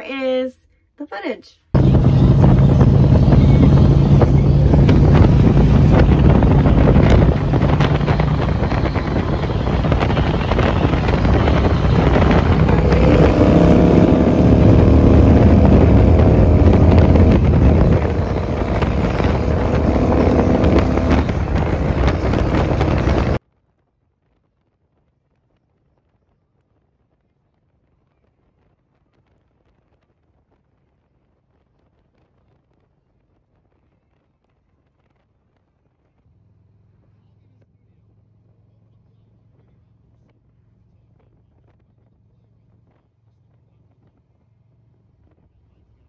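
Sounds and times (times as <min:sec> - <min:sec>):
motorcycle engine running: 0:01.8 - 0:23.4
rising engine note: 0:01.8 - 0:23.4
wind noise on microphone: 0:01.8 - 0:23.4.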